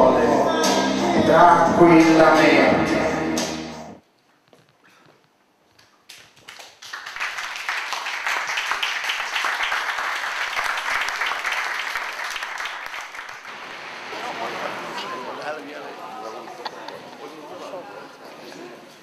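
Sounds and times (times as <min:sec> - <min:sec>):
audience applauding: 0:06.4 - 0:15.7.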